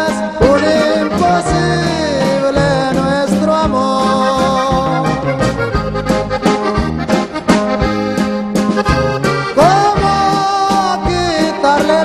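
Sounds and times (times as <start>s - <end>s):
man singing: 0.0s - 5.7s, 9.5s - 12.0s
accordion: 0.0s - 12.0s
bass line: 0.0s - 12.0s.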